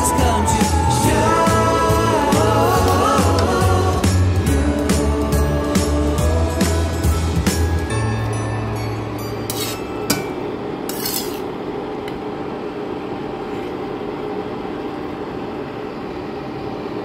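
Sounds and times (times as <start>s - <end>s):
utensil scraping a wok: 9.5s - 10.1s, 10.9s - 11.5s.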